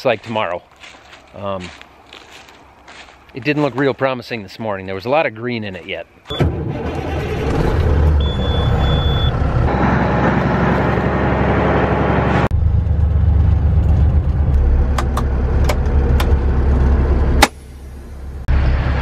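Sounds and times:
truck engine running: 6.3s - 19.0s
short steady beep: 8.2s - 10.2s.

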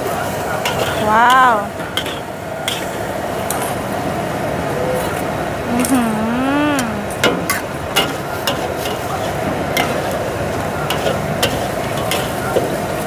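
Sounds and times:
person speaking: 1.0s - 1.7s, 5.7s - 7.3s
food sizzling: 5.0s - 13.0s
metal spatulas scraping wok: 10.9s - 12.5s.

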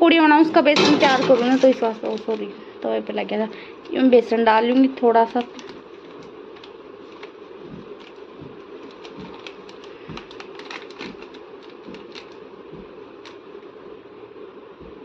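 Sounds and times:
steady low hum: 0.0s - 15.0s
plastic packet crinkling: 1.2s - 2.5s, 5.3s - 13.4s.

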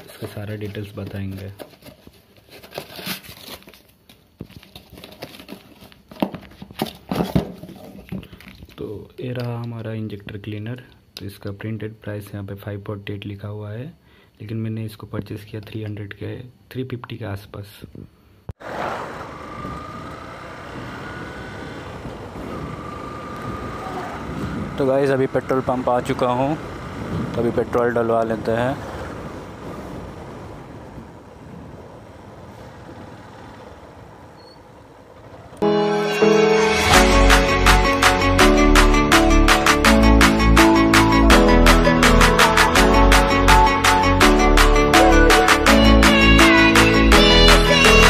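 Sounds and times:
cardboard and plastic wrap crinkling: 0.0s - 8.8s
motorcycle engine running: 18.7s - 35.6s
wind rushing over microphone: 19.5s - 25.2s, 26.5s - 32.1s.

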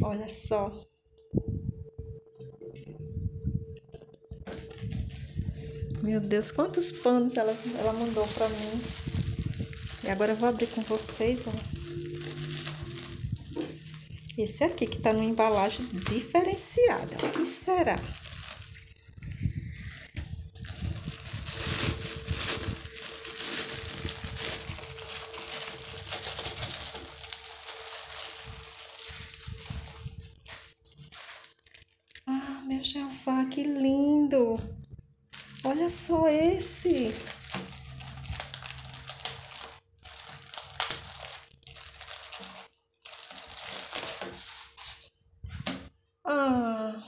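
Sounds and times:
foil wrapping crumpling: 4.5s - 33.7s, 35.3s - 45.7s.

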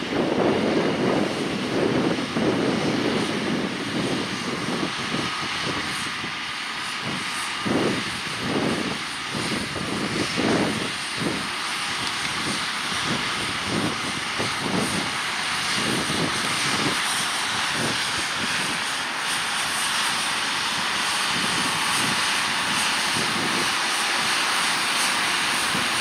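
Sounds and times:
distant tractor working: 0.0s - 26.0s.

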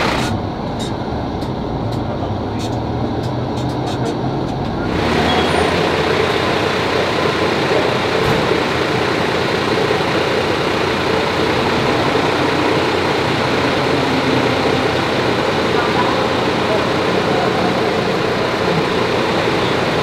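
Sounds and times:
running vehicle rumble: 0.0s - 20.0s.

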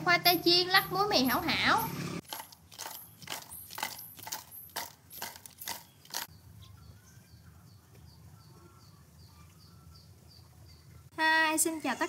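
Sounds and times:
fried food rattling in container: 2.2s - 6.3s.

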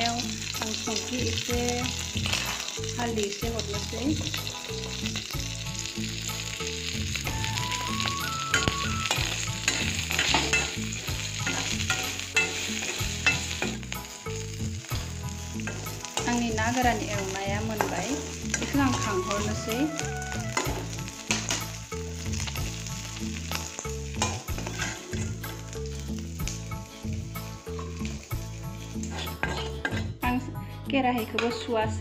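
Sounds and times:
stems sizzling in hot oil: 0.0s - 32.0s
metal spatula scraping pan: 8.5s - 13.8s, 24.2s - 25.4s, 29.0s - 30.2s.

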